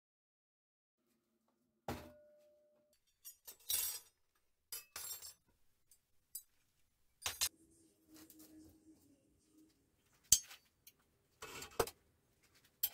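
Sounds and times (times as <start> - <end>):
cutlery clattering on steel bench: 3.0 - 5.4, 7.2 - 7.5, 10.3 - 10.7.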